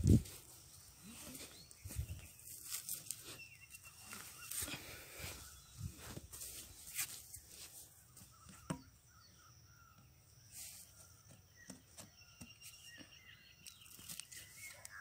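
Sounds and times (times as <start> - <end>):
faint high chirps: 1.0 - 6.9.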